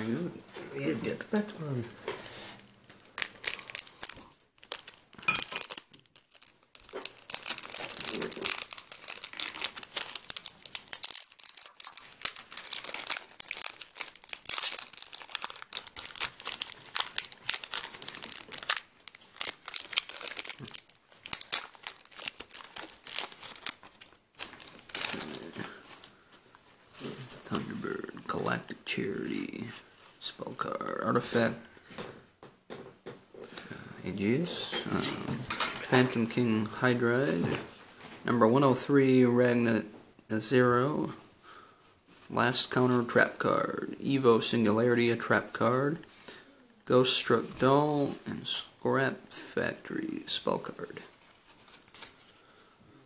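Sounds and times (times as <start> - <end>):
foil wrapper crinkling and tearing: 3.1 - 26.6, 51.0 - 52.6.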